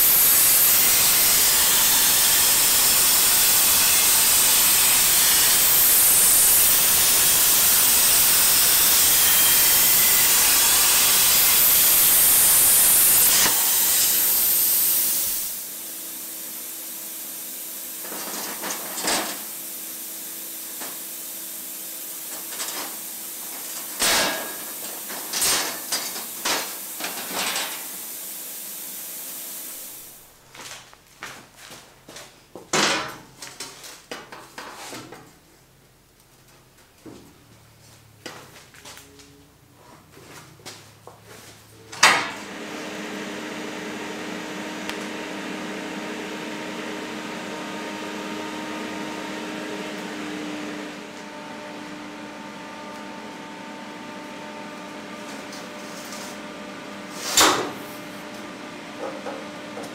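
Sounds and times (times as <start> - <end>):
welding arc hiss: 0.0 - 30.5, 57.1 - 58.3.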